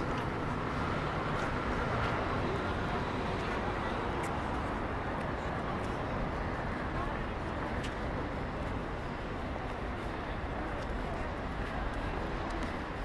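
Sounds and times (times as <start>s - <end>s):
passers-by: 0.0s - 13.0s
traffic hum: 0.0s - 13.0s.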